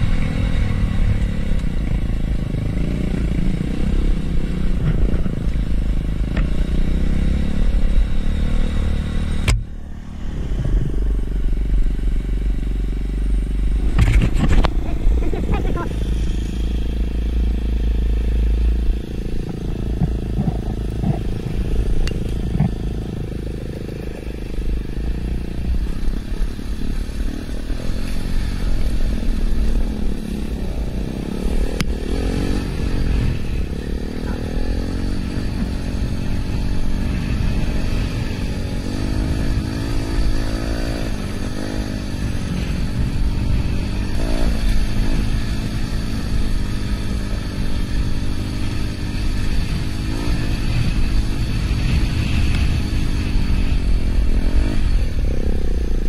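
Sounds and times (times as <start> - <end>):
dirt bike engine revving: 13.1 - 56.0.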